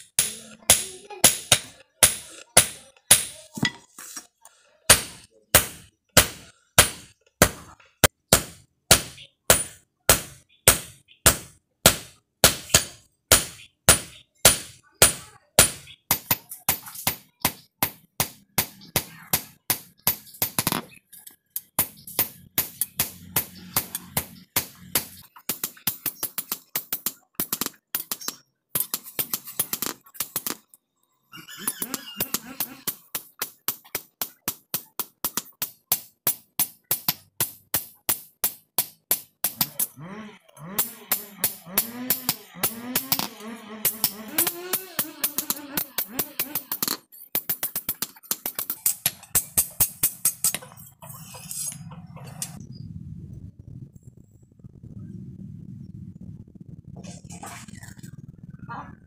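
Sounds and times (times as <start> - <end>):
hammer striking steel on anvil: 0.1 - 3.8, 4.9 - 7.7, 8.3 - 19.1, 32.4 - 40.0, 40.8 - 50.6.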